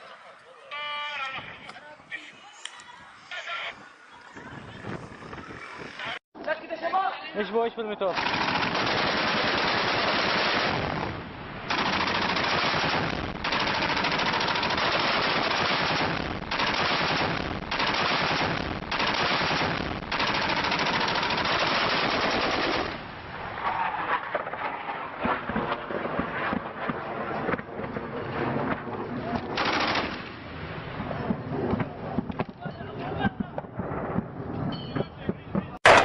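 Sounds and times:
heavy machine gun bursts: 0:08.2 - 0:10.7, 0:11.7 - 0:23.0, 0:29.6 - 0:30.2.

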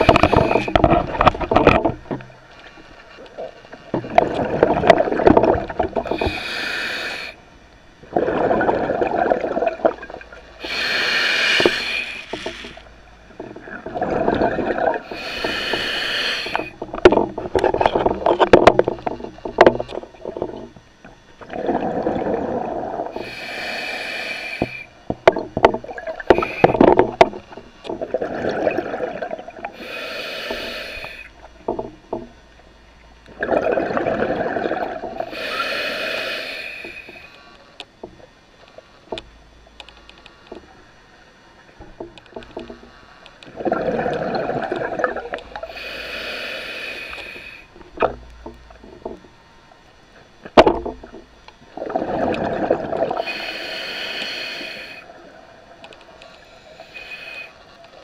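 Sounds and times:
regulator inhalation hiss: 0:00.0 - 0:00.8, 0:06.0 - 0:07.4, 0:10.6 - 0:12.8, 0:15.0 - 0:16.8, 0:23.1 - 0:25.0, 0:26.3 - 0:26.9, 0:29.7 - 0:31.3, 0:35.2 - 0:37.4, 0:45.6 - 0:47.7, 0:53.2 - 0:55.1, 0:56.2 - 0:57.8
rumble of exhaled bubbles: 0:00.0 - 0:02.4, 0:03.3 - 0:06.4, 0:08.0 - 0:15.8, 0:21.4 - 0:23.2, 0:25.2 - 0:29.8, 0:33.3 - 0:35.5, 0:43.5 - 0:45.8, 0:50.5 - 0:53.3
sharp clicks and crackles: 0:36.8 - 0:40.9, 0:55.8 - 0:56.4.

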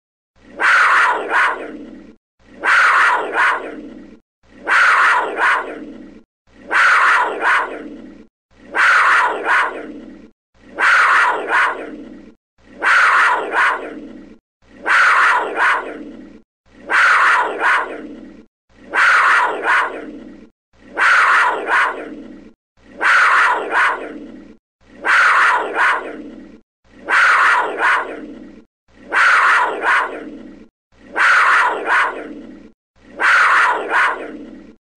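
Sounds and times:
big cat call: 0:00.6 - 0:01.8, 0:02.6 - 0:03.8, 0:04.6 - 0:05.8, 0:06.7 - 0:07.9, 0:08.7 - 0:09.9, 0:10.7 - 0:12.0, 0:12.8 - 0:14.0, 0:14.8 - 0:16.0, 0:16.8 - 0:18.0, 0:18.9 - 0:20.1, 0:20.9 - 0:22.1, 0:23.0 - 0:24.2, 0:25.0 - 0:26.2, 0:27.0 - 0:28.2, 0:29.1 - 0:30.3, 0:31.1 - 0:32.4, 0:33.2 - 0:34.4.

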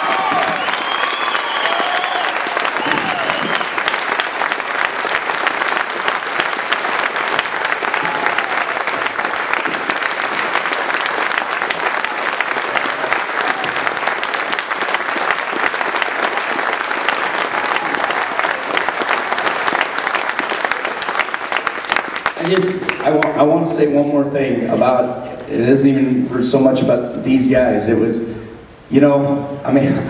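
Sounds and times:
large crowd applauding: 0:00.0 - 0:23.6.

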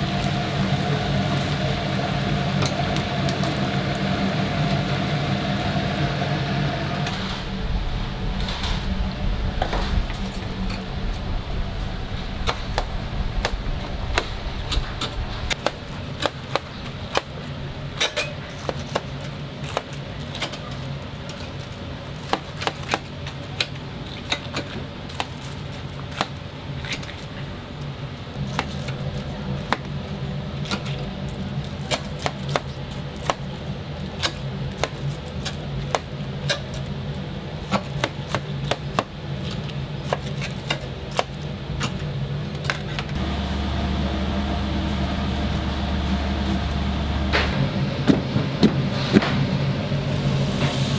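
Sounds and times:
low hum: 0:00.0 - 0:18.0, 0:42.1 - 0:50.9.

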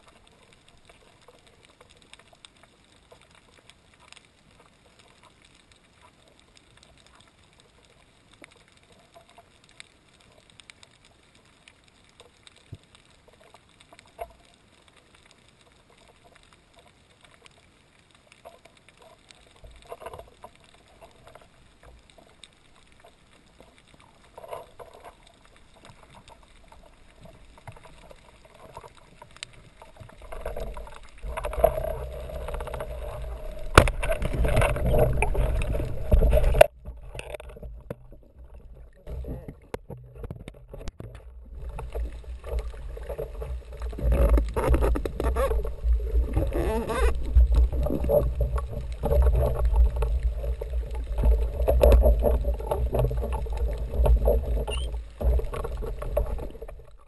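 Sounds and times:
underwater clicks and crackle: 0:00.0 - 0:57.0
water swishes: 0:00.0 - 0:57.0
water rushing: 0:18.3 - 0:57.0.

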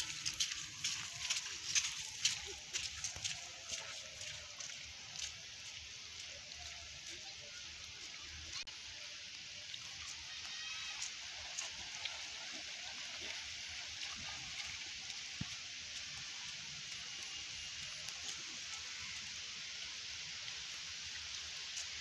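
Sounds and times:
raindrops ticking: 0:00.0 - 0:07.3, 0:14.6 - 0:18.8
light rain on grass: 0:00.0 - 0:22.0.

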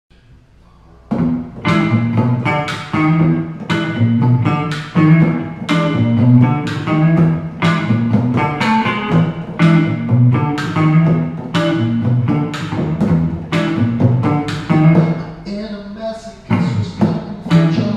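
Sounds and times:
acoustic and electric guitars: 0:00.9 - 0:17.9.

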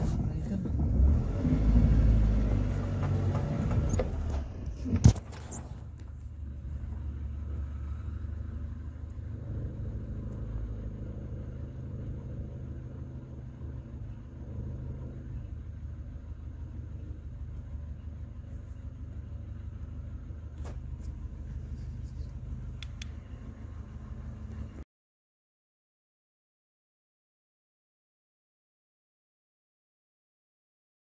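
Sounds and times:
vehicle engine idling: 0:00.0 - 0:24.8
faint click: 0:22.3 - 0:23.2.

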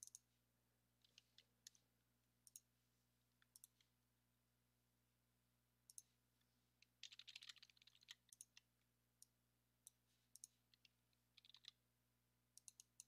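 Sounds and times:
mouse and keyboard clicks: 0:03.4 - 0:03.9, 0:06.8 - 0:08.7, 0:10.4 - 0:11.8, 0:12.6 - 0:13.0.

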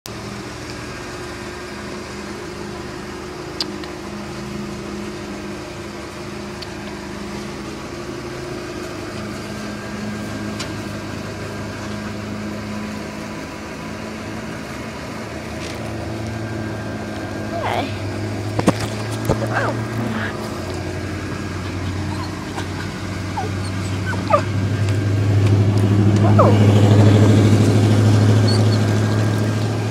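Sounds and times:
machine hum: 0:00.2 - 0:29.9.

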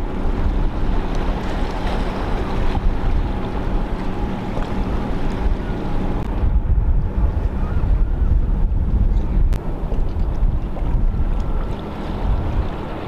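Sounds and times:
boat engines droning: 0:00.0 - 0:13.0
wind rumbling on microphone: 0:00.0 - 0:13.0.

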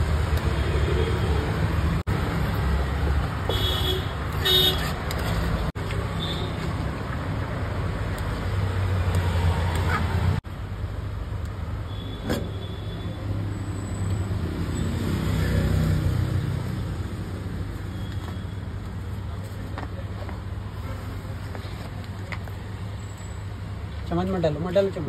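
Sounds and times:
street traffic rumble: 0:00.0 - 0:25.0.

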